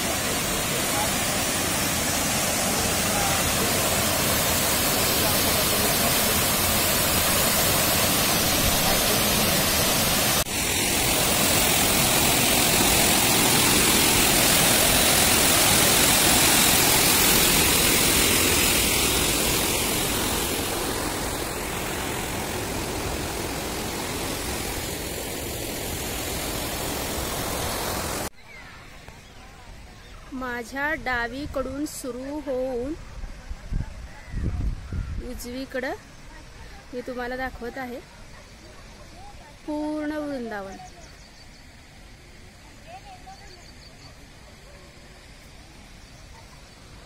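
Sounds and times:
fountain water pouring: 0:00.0 - 0:28.3.

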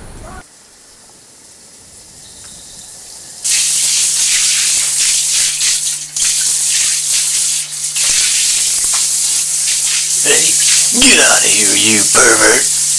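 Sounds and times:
shower spraying water: 0:02.9 - 0:12.9.

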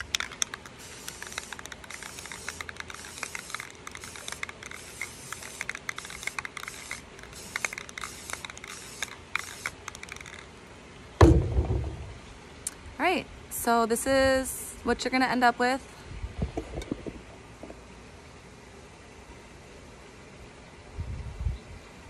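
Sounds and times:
small clicks: 0:00.0 - 0:04.7
spray paint can hissing: 0:00.0 - 0:10.5
loud thump: 0:11.2 - 0:12.2.

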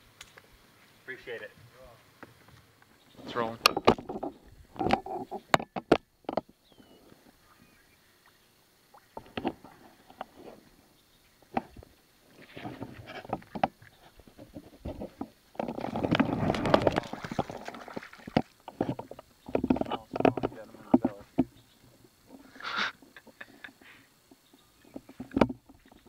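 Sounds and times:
small clicks and knocks: 0:03.6 - 0:06.6, 0:09.0 - 0:10.4, 0:12.6 - 0:22.4, 0:23.2 - 0:26.0
fish splashing at surface: 0:15.7 - 0:18.6.

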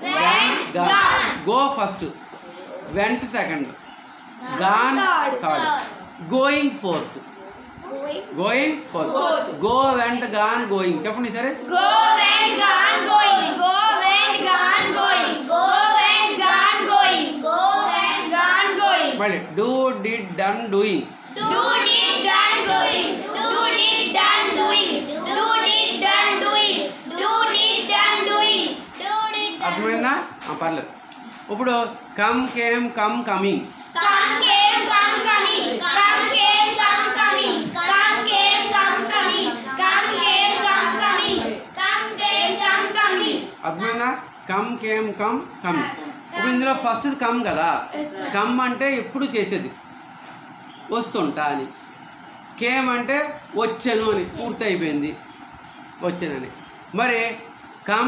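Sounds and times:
children chanting in unison: 0:11.7 - 0:19.2, 0:21.4 - 0:29.3, 0:34.0 - 0:43.6.

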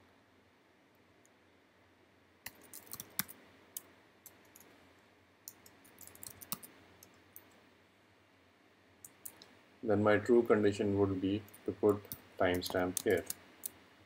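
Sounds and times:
keyboard keystrokes: 0:02.5 - 0:03.4, 0:05.5 - 0:06.7.

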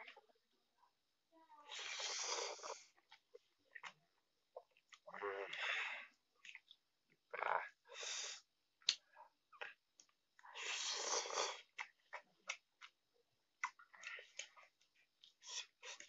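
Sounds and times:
person slurping noodles: 0:01.7 - 0:02.9, 0:10.5 - 0:11.7
wet chewing smacks: 0:06.4 - 0:06.9.

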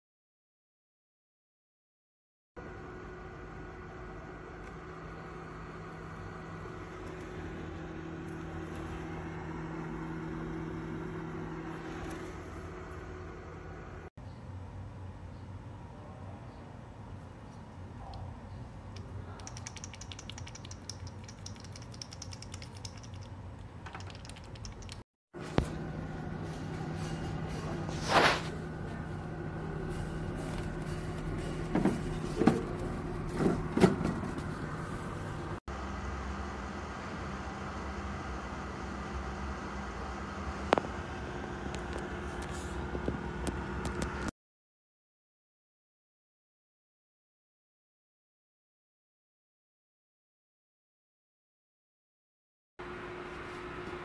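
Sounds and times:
dehumidifier fan hum: 0:25.4 - 0:44.3.

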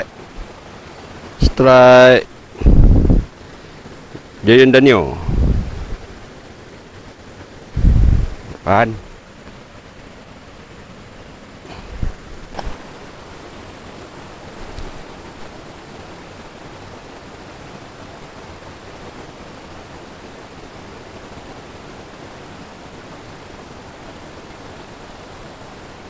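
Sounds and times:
stream water rushing over rapids: 0:00.0 - 0:26.0.

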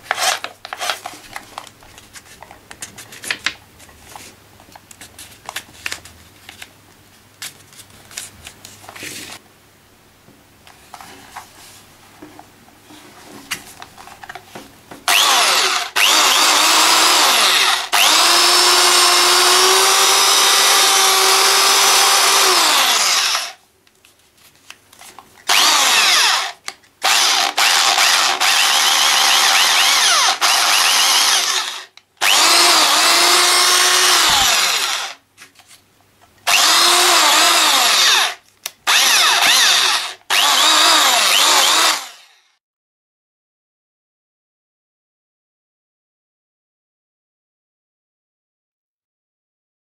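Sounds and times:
electric drill whining: 0:15.1 - 0:23.6, 0:25.5 - 0:35.2, 0:36.5 - 0:42.5.

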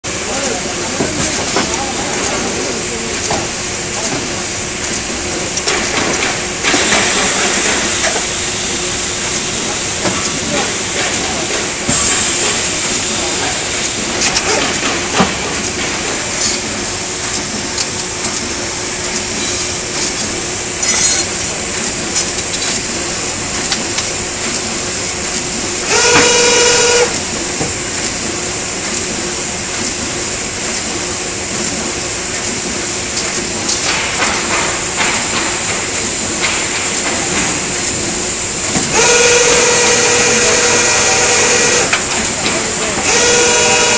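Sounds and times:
machine mechanical hum: 0:00.0 - 0:43.9
loud pitched tone: 0:25.9 - 0:27.2, 0:38.9 - 0:41.9.

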